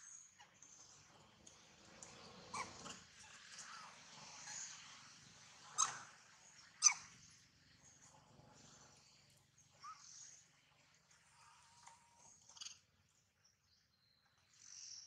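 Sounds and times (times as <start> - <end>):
baby monkey squeaking: 2.5 - 2.8, 5.8 - 6.1, 6.8 - 7.0.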